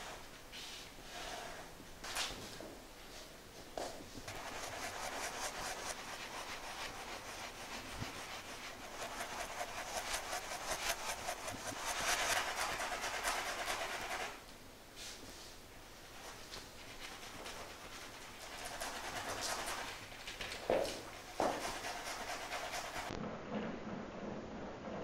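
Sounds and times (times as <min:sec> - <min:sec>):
drawing tool scratching canvas: 0:04.3 - 0:14.4, 0:16.9 - 0:23.2.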